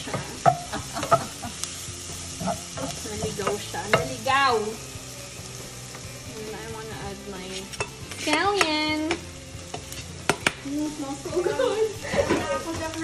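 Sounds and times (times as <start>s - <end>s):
onions sizzling in frying pan: 0.0s - 13.0s.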